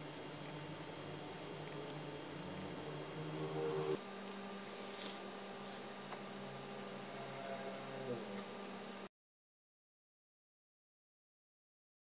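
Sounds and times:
faint low hum: 0.0s - 9.1s
room hiss: 0.0s - 9.1s.

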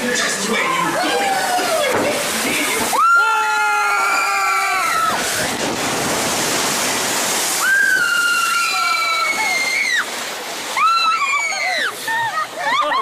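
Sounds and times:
water rushing and spraying: 0.0s - 13.0s
riders screaming: 3.0s - 5.5s, 7.6s - 10.1s.

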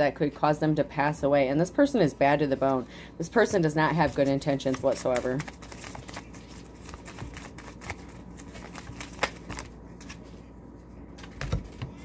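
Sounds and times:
cards being shuffled: 4.1s - 10.4s.

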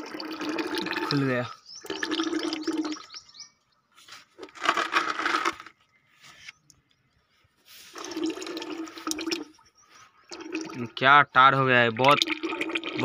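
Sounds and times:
oil draining into plastic drum: 0.0s - 3.2s, 7.9s - 9.6s, 10.3s - 13.0s
oil splashing and gurgling: 0.0s - 3.2s, 7.9s - 11.0s, 11.8s - 13.0s.

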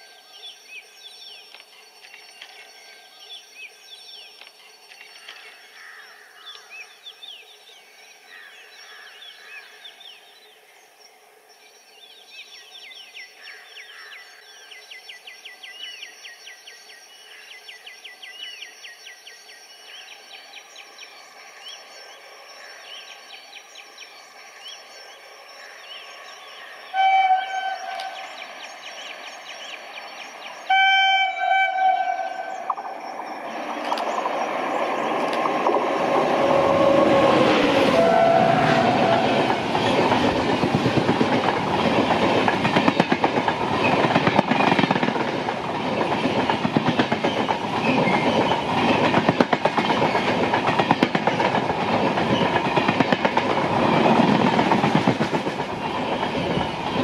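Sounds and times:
train running noise: 19.8s - 57.0s
locomotive horn blast: 27.0s - 28.2s, 30.7s - 32.7s, 36.1s - 39.7s.

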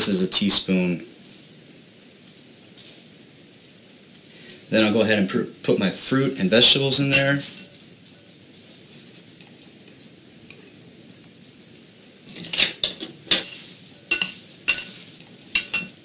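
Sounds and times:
utensils clinking on ceramic bowl: 7.1s - 7.8s, 12.3s - 16.0s.

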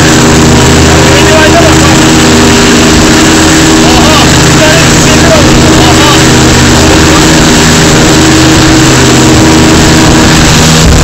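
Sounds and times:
motorboat engine running: 0.0s - 11.0s
rush of wind and water: 0.0s - 11.0s.

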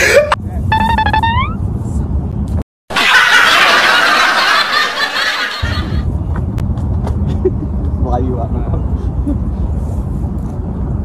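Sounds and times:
loud snickering laughter: 2.9s - 6.0s.

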